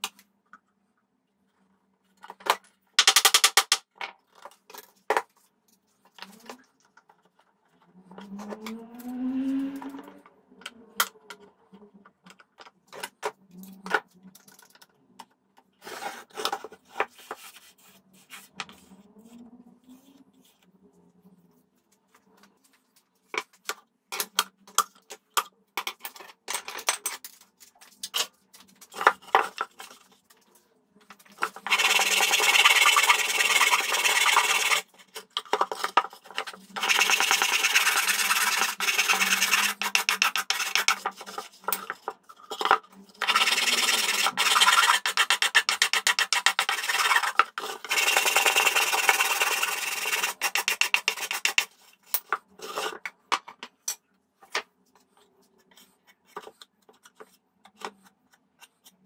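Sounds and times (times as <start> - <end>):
sanding wood by hand: 31.7 - 34.8, 36.8 - 40.9, 43.2 - 47.3, 47.9 - 51.7.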